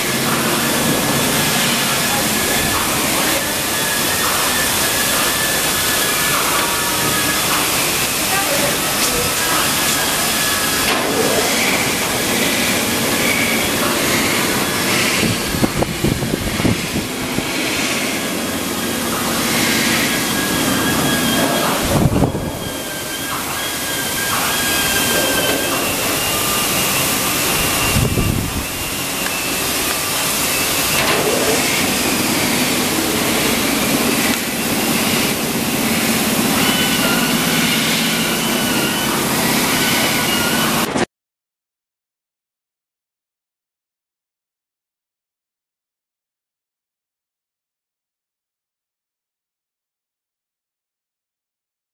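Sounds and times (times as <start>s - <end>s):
sanding machine grinding steel: 0.0s - 41.0s.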